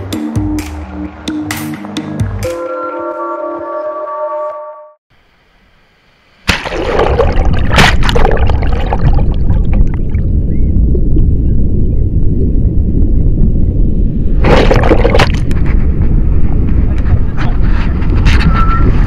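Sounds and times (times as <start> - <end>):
background music: 0.0 - 4.9.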